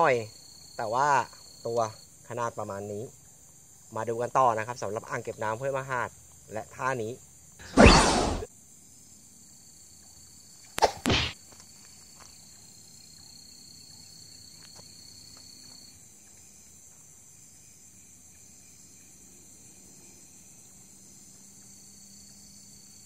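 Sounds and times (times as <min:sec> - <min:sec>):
insect trill: 0:00.0 - 0:23.0
night insects chirring: 0:00.0 - 0:23.0
fishing rod swish: 0:07.6 - 0:08.5.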